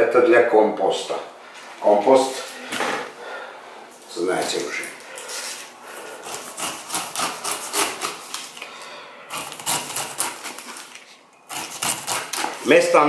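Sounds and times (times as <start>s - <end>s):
knife cutting pineapple rind: 6.1s - 8.6s, 9.3s - 13.0s.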